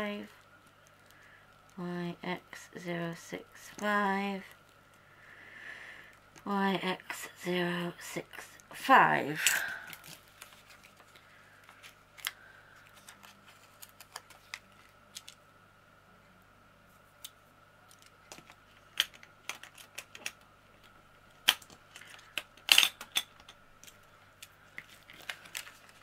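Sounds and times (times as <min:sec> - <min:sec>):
small plastic parts clicking: 0:17.9 - 0:20.4.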